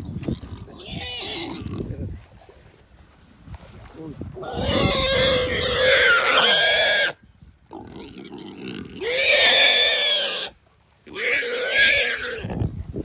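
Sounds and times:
hog squealing: 4.4s - 7.2s, 8.9s - 10.5s, 11.1s - 12.5s.

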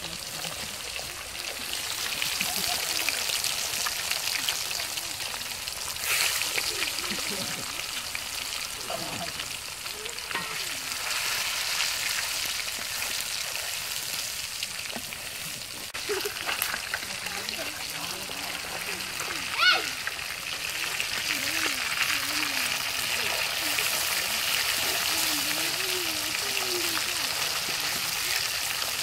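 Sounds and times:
fish deep-frying in bubbling oil: 0.0s - 29.0s
metal spatula stirring in pan: 10.3s - 14.1s.

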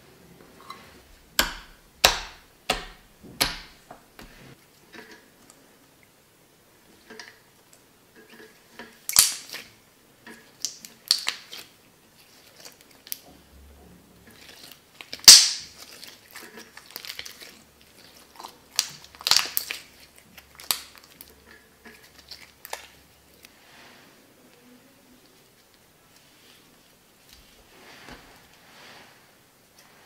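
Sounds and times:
slime squeezed with crackling snaps: 9.1s - 9.7s, 10.6s - 11.6s.

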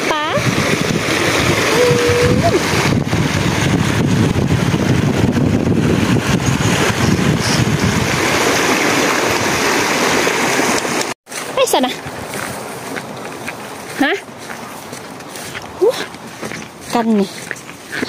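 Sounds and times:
wind buffeting microphone: 0.0s - 11.0s
water rushing through channel: 0.0s - 18.0s.

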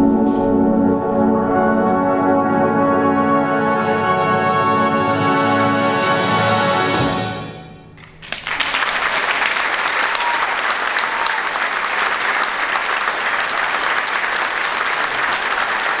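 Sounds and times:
brass band chord: 0.0s - 7.8s
audience applause: 8.0s - 16.0s.

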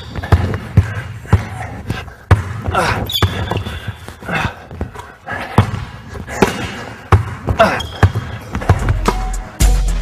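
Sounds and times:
basketball bouncing on hardwood: 0.0s - 3.8s, 5.6s - 9.0s
sneaker squeaking: 0.0s - 9.2s.

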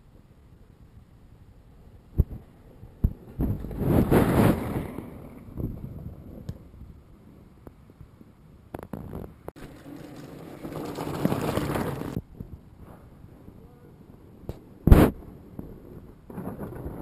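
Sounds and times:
bike tyres rolling over snow: 2.0s - 12.2s.

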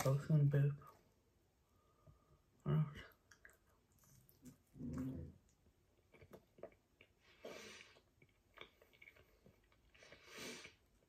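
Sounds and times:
person chewing pizza: 3.1s - 11.0s.

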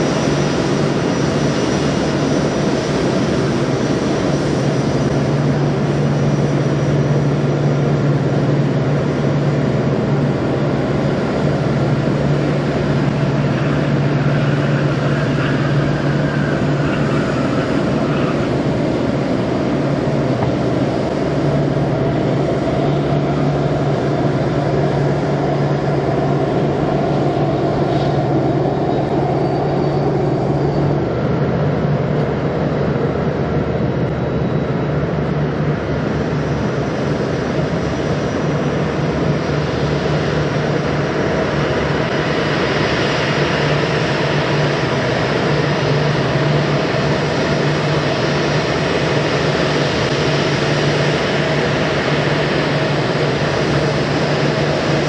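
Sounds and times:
jet engines at taxi power: 0.0s - 55.0s.

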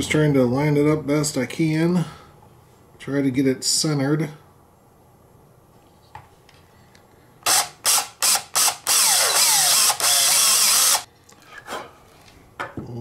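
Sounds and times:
cordless drill boring plastic: 7.4s - 11.1s.

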